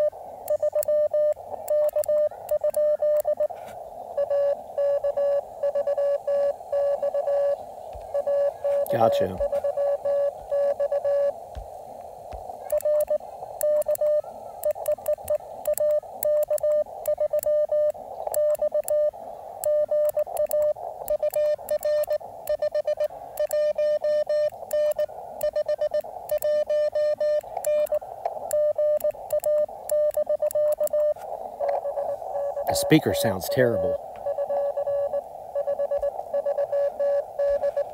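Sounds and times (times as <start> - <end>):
radio receiver hiss: 0.0 - 37.9
morse code tone: 4.2 - 11.4, 12.7 - 37.9
faint clicks: 11.5 - 32.8.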